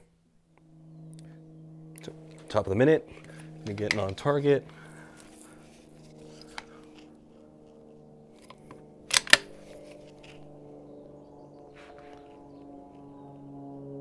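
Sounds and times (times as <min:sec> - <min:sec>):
faint steady hum: 0:00.0 - 0:14.0
rifle shot crack: 0:09.1 - 0:09.6.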